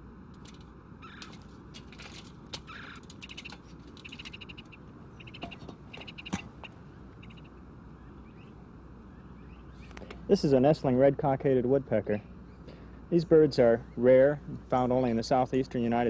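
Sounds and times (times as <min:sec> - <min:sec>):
low steady rumble: 0:00.0 - 0:16.0
woodpeckers chattering calls: 0:01.0 - 0:01.3, 0:02.6 - 0:10.3.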